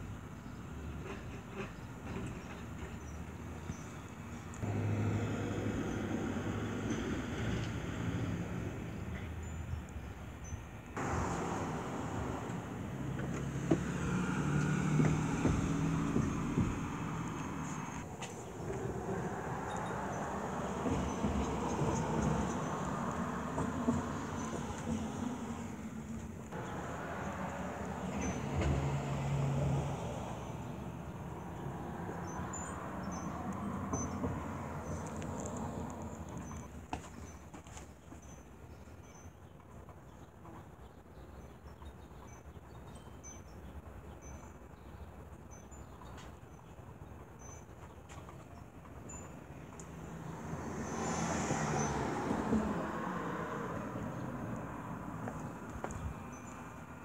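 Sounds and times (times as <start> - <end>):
road noise: 0.0 - 57.0
van engine driving past: 4.6 - 9.0, 11.0 - 36.6, 49.9 - 55.7.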